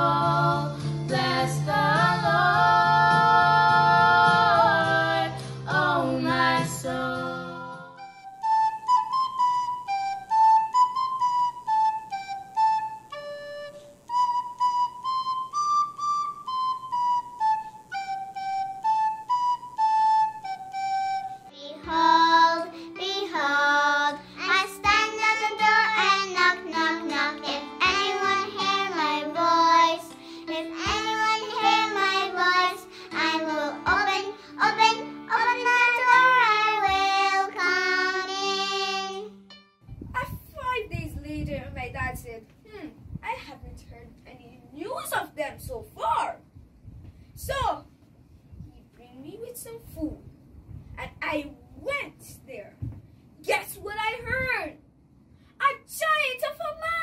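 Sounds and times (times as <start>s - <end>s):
girls singing with vibrato: 0.0s - 8.0s, 21.7s - 39.3s
high held melody line: 7.8s - 40.0s.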